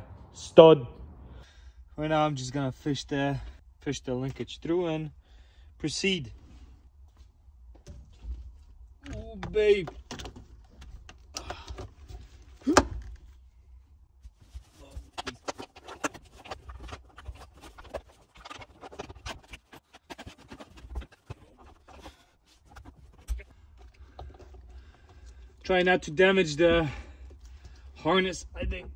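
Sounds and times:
cables rustling and scraping: 5.8s - 28.9s.

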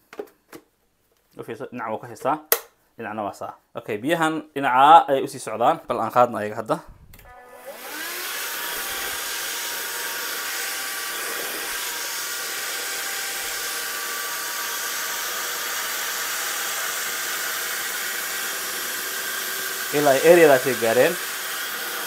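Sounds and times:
handheld vacuum cleaner whining: 7.3s - 22.0s.

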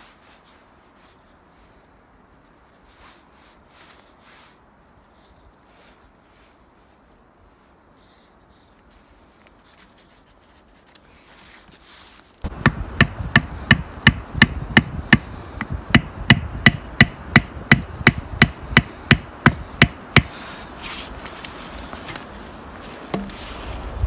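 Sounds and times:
hatchet knocking tent stake: 12.5s - 20.4s.

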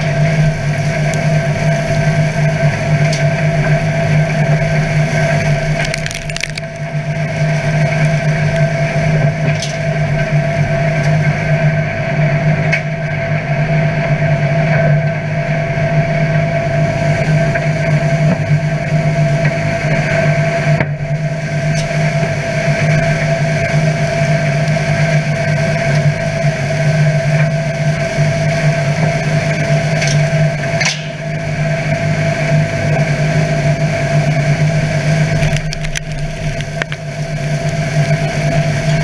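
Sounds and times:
straw chopper machine hum: 0.0s - 39.0s
sharp cracks: 5.4s - 8.7s, 35.4s - 37.9s.

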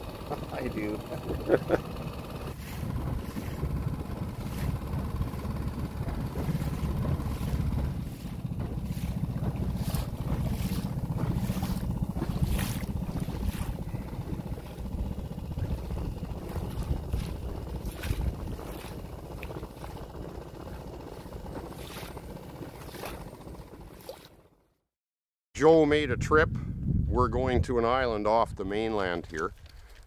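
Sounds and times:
water rushing past boat: 0.0s - 24.5s
wind on microphone: 2.6s - 23.2s, 25.9s - 29.3s.

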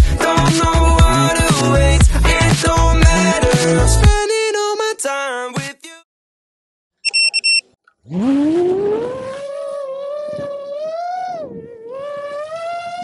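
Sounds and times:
high beeping chime: 7.0s - 7.6s.

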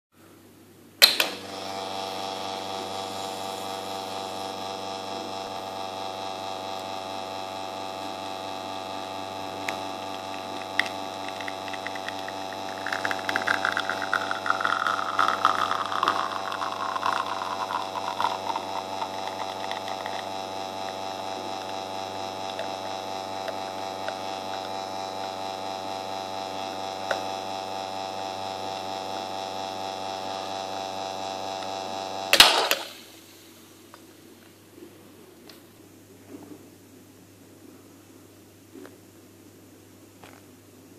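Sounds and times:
espresso machine pump humming: 1.1s - 33.0s
espresso trickling into glass: 10.1s - 21.9s.

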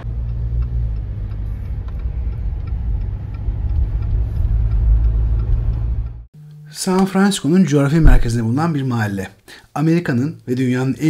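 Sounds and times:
engine low rumble: 0.0s - 6.3s
faint regular ticking: 0.0s - 6.7s.

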